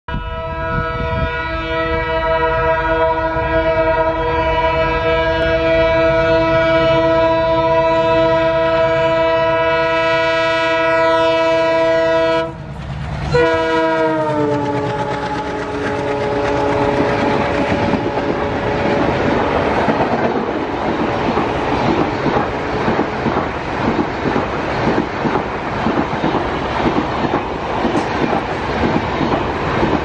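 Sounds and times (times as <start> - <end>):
locomotive horn blast: 0.1 - 12.7, 13.3 - 20.0
locomotive engine rumble: 11.7 - 30.0.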